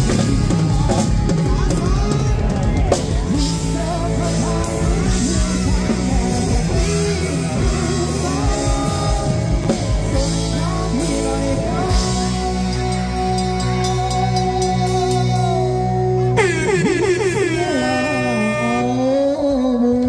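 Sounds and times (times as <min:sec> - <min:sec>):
person singing: 0:00.0 - 0:20.0
rock band with guitar: 0:00.0 - 0:20.0.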